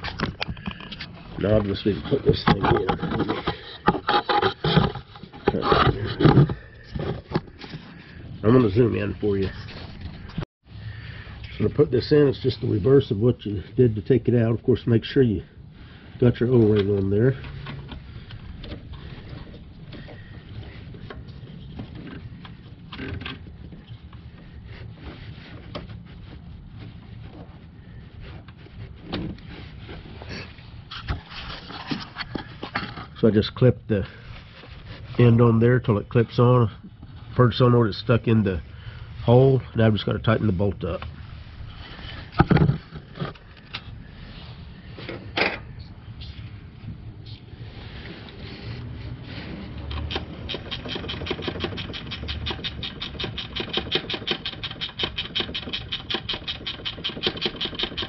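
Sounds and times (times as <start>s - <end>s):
knocks and clicks under hood: 49.9s - 58.0s.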